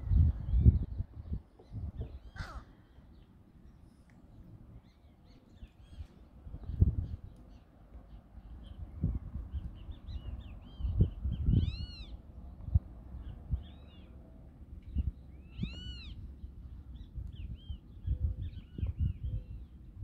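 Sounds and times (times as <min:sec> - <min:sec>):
thumps and rumble on microphone: 0:00.0 - 0:02.2, 0:18.1 - 0:19.5
birds chirping: 0:00.1 - 0:20.0
drawn-out bird calls: 0:02.0 - 0:03.3.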